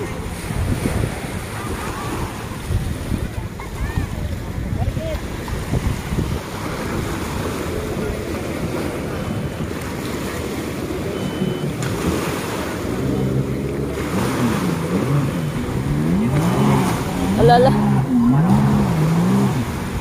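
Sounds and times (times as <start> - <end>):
jet ski engine revving: 0.0 - 20.0
small waves washing on shore: 0.0 - 20.0
wind on microphone: 0.0 - 20.0.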